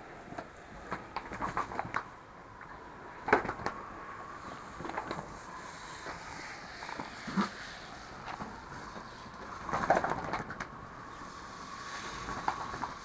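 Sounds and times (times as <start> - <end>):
water spray: 11.2 - 13.0.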